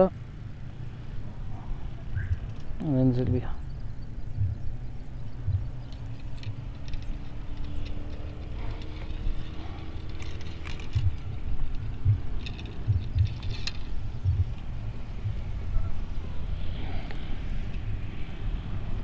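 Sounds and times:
faint hum rising in pitch: 0.0 - 19.0
wind and handling on microphone: 1.2 - 19.0
light clicks and taps: 5.4 - 15.4.

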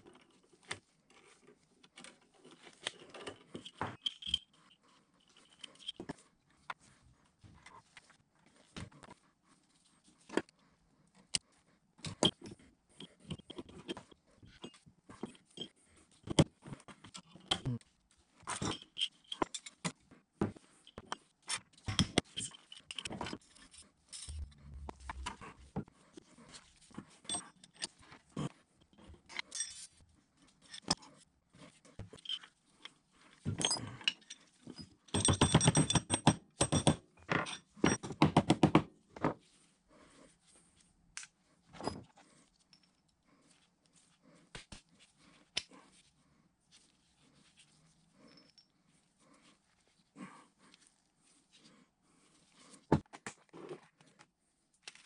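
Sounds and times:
metal parts clinking on wood: 2.0 - 4.7, 5.3 - 6.1, 18.5 - 19.9, 29.3 - 30.0, 32.0 - 32.5, 33.4 - 38.2.

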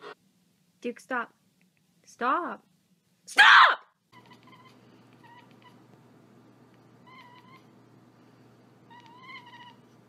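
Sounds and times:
cat meowing: 7.0 - 7.7, 8.9 - 9.8.

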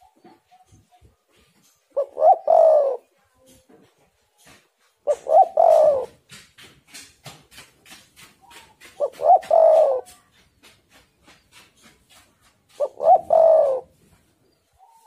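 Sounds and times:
dove cooing: 0.0 - 3.2, 4.4 - 6.3, 8.5 - 10.4, 12.7 - 14.1.

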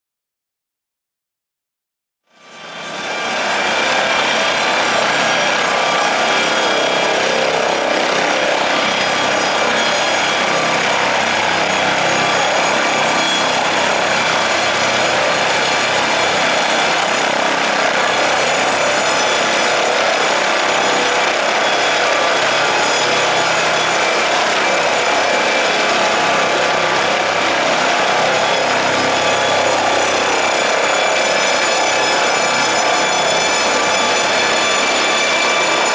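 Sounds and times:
helicopter turbine and rotor noise: 2.3 - 35.9.

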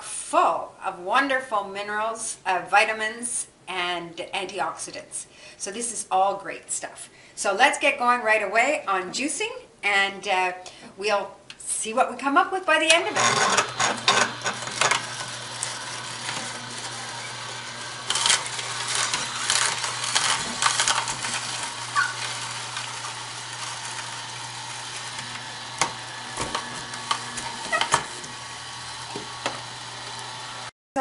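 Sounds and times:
juicer motor humming: 13.0 - 30.7
vegetables crunching: 13.6 - 30.5.

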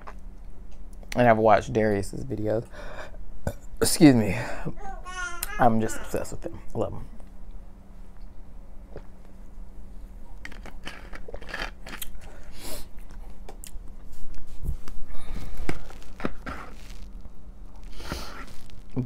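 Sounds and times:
chewing: 10.4 - 12.3.

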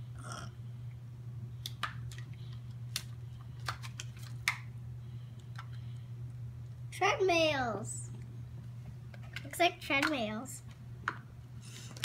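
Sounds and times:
low hum: 0.0 - 9.5.

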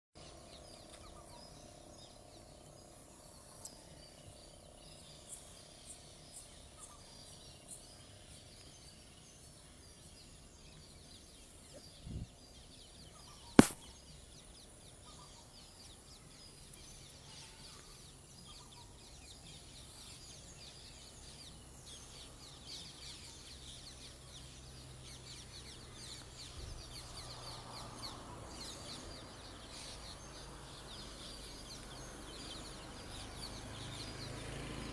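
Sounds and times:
faint bird chirps: 0.2 - 34.0
insect chirps: 8.5 - 20.6
sharp click: 13.6 - 13.9.

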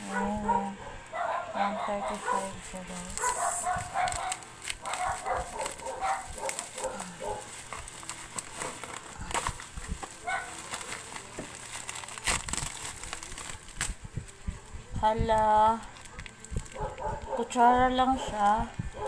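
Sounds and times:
dog barking: 0.0 - 2.6, 3.2 - 7.5, 10.2 - 10.6, 16.8 - 17.6
bubble wrap crinkling: 0.0 - 19.0.

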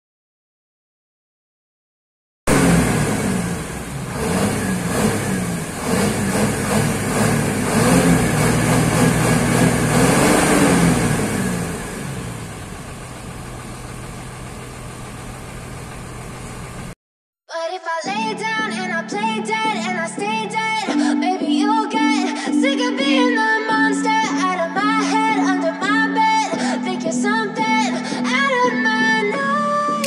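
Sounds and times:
diesel engine revving and idling: 2.5 - 17.0.

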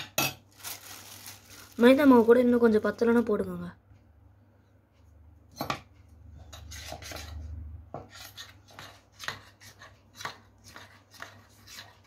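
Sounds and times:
metal spoon scraping a steel bowl: 6.3 - 12.0.

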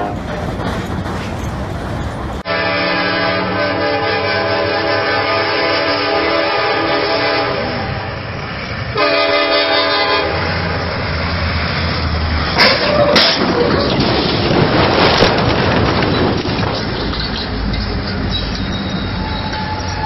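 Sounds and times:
locomotive air horn blasts: 2.4 - 8.1, 8.9 - 10.6.

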